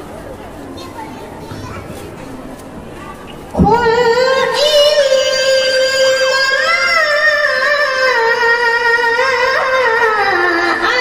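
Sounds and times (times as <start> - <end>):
boy reciting melodically: 0.5 - 11.0.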